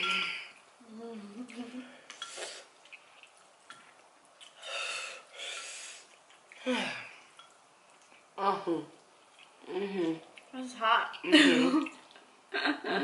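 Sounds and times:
person humming: 0.0s - 2.0s
person sighing: 6.6s - 7.1s.

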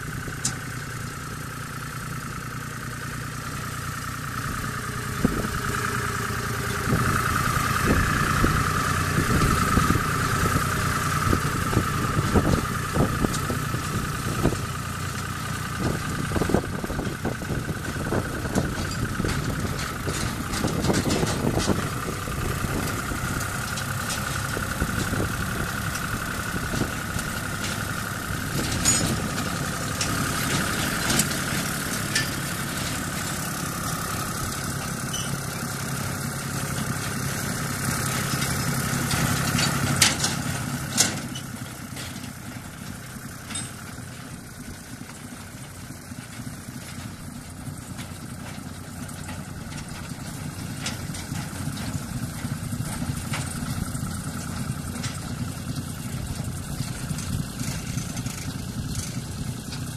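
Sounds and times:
diesel locomotive engine running: 0.0s - 59.9s
sharp metal clanks: 28.5s - 33.1s, 43.4s - 43.9s.

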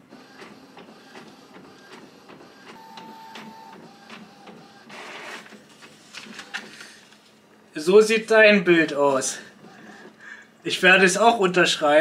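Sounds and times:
printer clicks and whirs: 0.1s - 7.3s.

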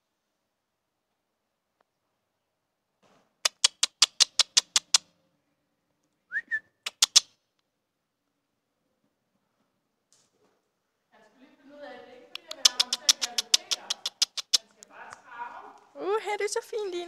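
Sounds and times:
person clicking tongue: 3.4s - 5.0s, 6.8s - 7.3s, 12.4s - 14.6s
rising kissing chirp: 3.4s - 5.1s, 6.3s - 7.3s, 12.4s - 14.7s.

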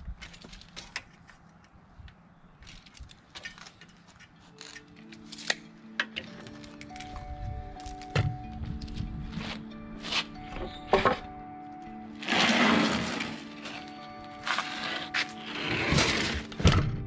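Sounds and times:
background music: 4.2s - 17.0s.

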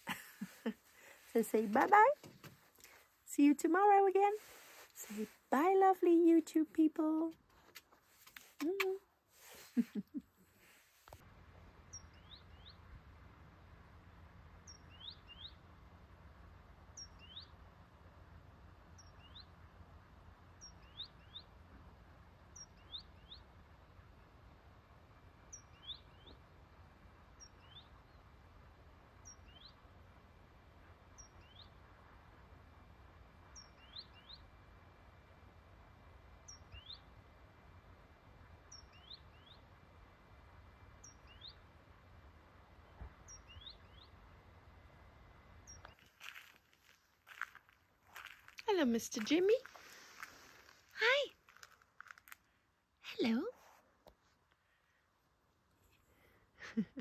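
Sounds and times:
low background rumble: 11.2s - 53.2s.

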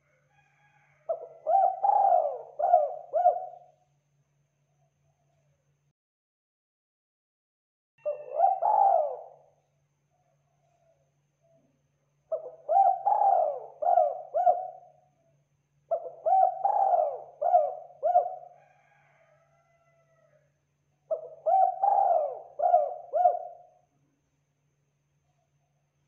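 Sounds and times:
dove cooing: 1.1s - 3.8s, 8.0s - 9.5s, 12.3s - 15.1s, 15.9s - 19.0s, 21.1s - 23.8s.

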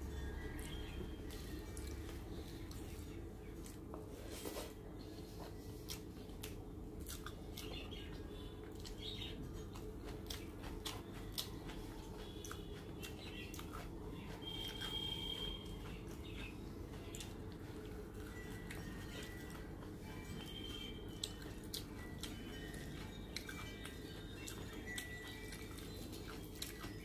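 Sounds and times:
fingers squishing wet food: 5.4s - 17.8s.

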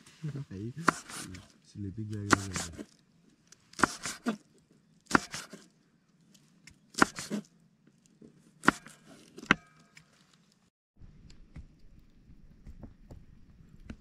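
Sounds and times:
knife chopping on wooden board: 0.8s - 1.4s, 2.2s - 2.8s, 3.7s - 4.4s, 5.1s - 5.7s, 6.9s - 7.4s, 8.6s - 9.7s.

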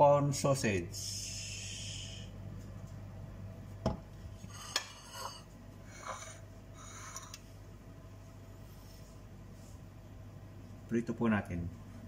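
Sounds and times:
kitchenware clinking and scraping: 4.3s - 7.4s.

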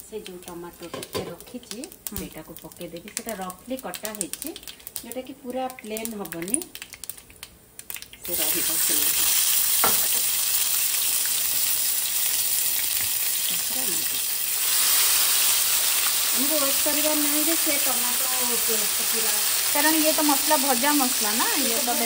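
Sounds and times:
food sizzling in hot oil: 7.9s - 22.0s.

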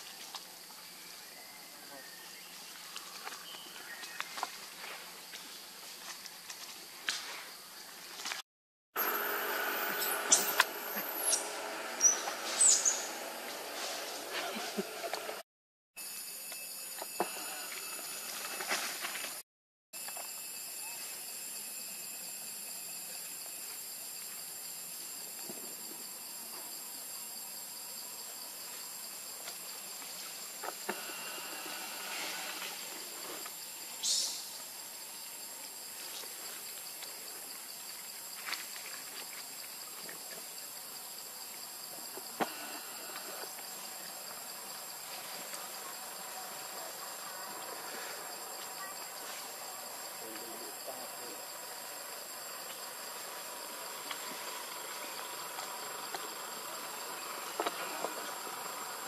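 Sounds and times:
insects chirping: 0.0s - 8.4s, 9.0s - 15.4s, 16.0s - 19.4s, 20.0s - 59.0s
brief high squeak: 9.0s - 13.1s.

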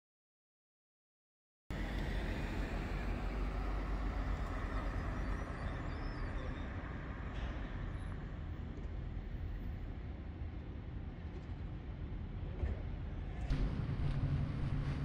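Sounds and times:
road traffic rumble: 1.7s - 10.1s.

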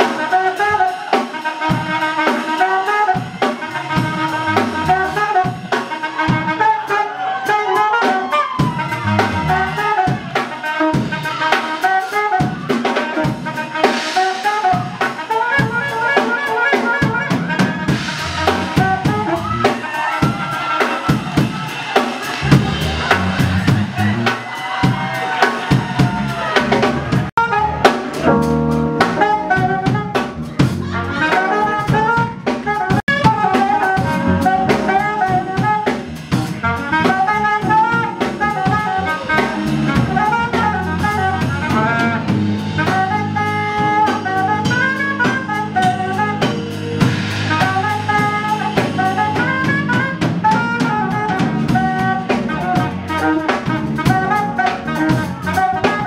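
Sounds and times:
drum kit beat: 0.0s - 56.0s
keyboards: 0.0s - 56.0s
saxophone melody: 0.0s - 56.0s
electric bass: 3.2s - 6.6s, 8.7s - 10.4s, 17.0s - 19.7s, 22.3s - 24.4s, 25.3s - 56.0s.

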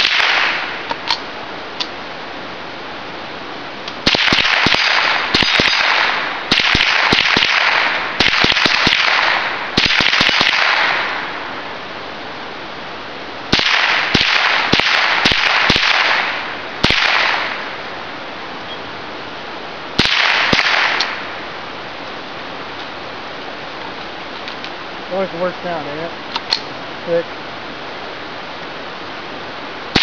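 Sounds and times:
rifle shots echoing: 0.0s - 0.9s, 4.0s - 11.5s, 13.5s - 17.8s, 20.0s - 21.5s.

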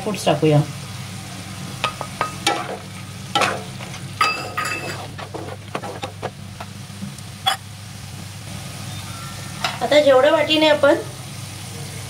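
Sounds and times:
pulp sizzling in a pan: 0.0s - 12.0s
wooden spatula scraping a pan: 3.8s - 6.4s.

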